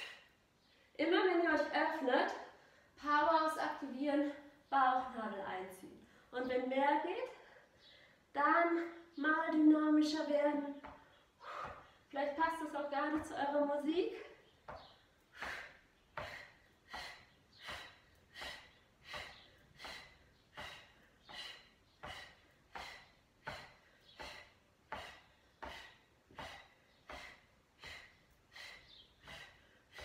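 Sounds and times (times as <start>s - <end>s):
woman breathing hard: 0.0s - 0.8s, 11.2s - 12.1s, 15.2s - 30.0s.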